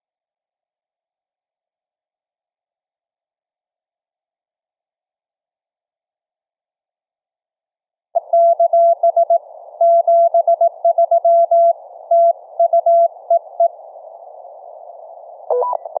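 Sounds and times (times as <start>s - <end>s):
two-pitch radio beep: 8.2s - 13.8s, 15.5s - 16.0s
radio hiss: 8.2s - 16.0s
morse code tone: 15.5s - 16.0s.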